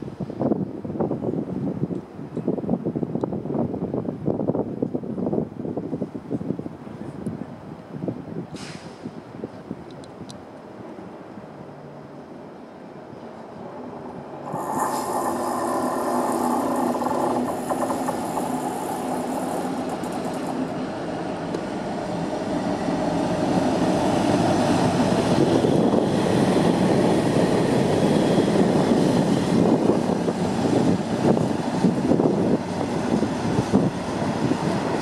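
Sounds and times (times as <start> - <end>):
diesel locomotive engine: 10.4 - 35.0
train wheels on rails: 13.1 - 35.0.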